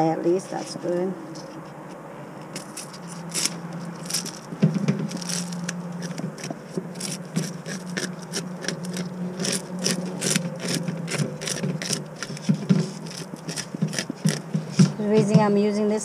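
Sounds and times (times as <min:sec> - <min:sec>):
steady low hum: 0:00.0 - 0:16.0
metal spoon scraping fish scales: 0:02.4 - 0:14.8.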